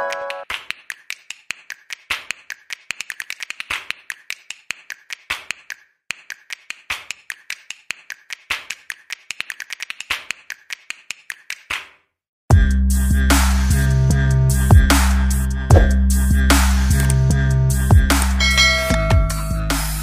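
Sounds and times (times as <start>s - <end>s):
clicky percussive music: 15.7s - 17.3s, 17.9s - 20.0s.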